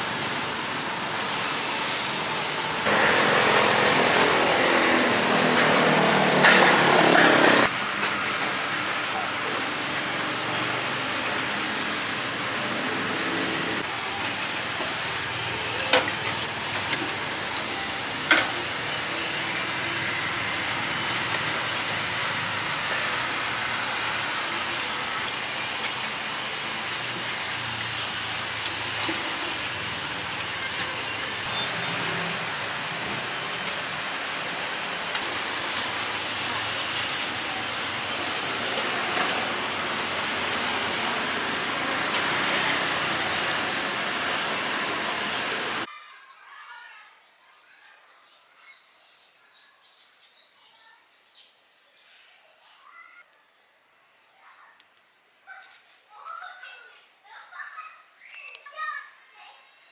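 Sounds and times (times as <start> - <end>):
hot oil sizzling in deep fryer: 0.0 - 45.9.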